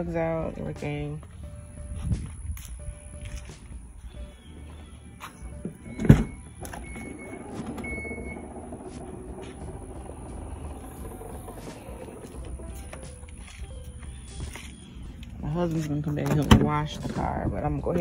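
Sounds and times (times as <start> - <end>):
liftgate motor running: 4.4 - 15.4.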